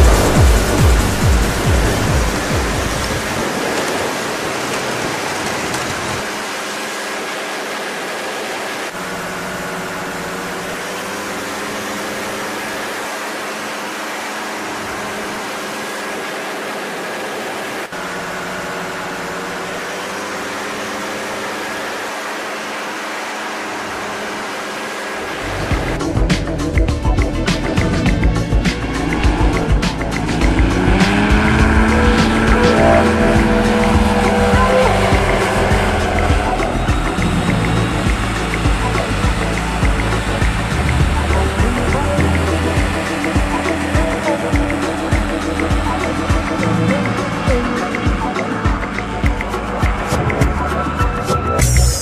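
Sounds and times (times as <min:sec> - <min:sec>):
wind rush: 0:00.0 - 0:06.3, 0:27.9 - 0:38.8
paramotor engine and propeller drone: 0:00.0 - 0:52.0.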